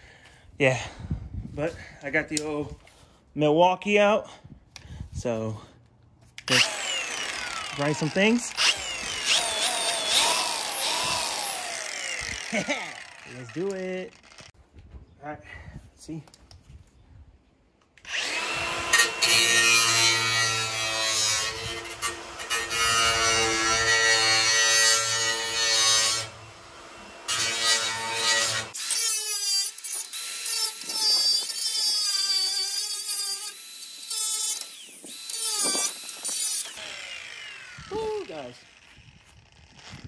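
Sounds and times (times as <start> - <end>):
angle grinder grinding metal: 6.4 - 14.6, 18.0 - 40.0
high wavering grinder whine: 6.5 - 14.5, 29.6 - 40.0.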